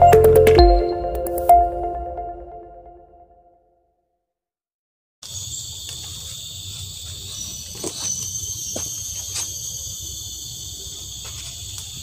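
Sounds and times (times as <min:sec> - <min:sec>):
insects buzzing: 0:05.2 - 0:12.0.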